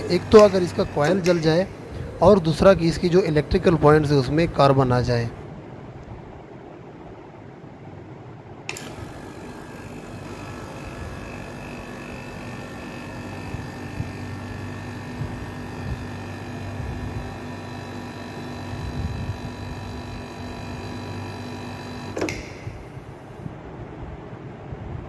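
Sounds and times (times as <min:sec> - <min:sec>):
relay click: 0:00.0 - 0:01.7, 0:08.7 - 0:10.5, 0:21.9 - 0:23.2
compressor hum and whine: 0:00.0 - 0:25.0.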